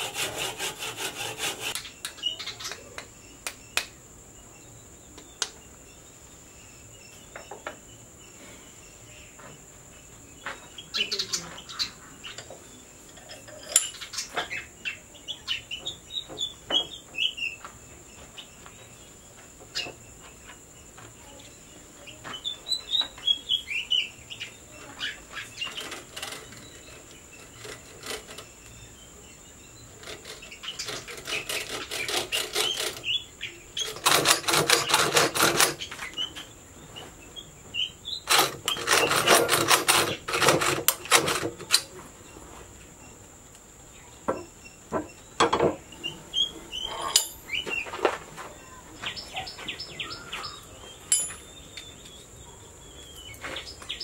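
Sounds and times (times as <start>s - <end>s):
rough rhythmic scraping of blade: 0.0s - 1.9s, 25.4s - 29.0s, 29.9s - 33.2s, 33.8s - 36.0s, 38.3s - 41.8s
birds chirping: 0.0s - 54.0s
high insect drone: 0.0s - 54.0s.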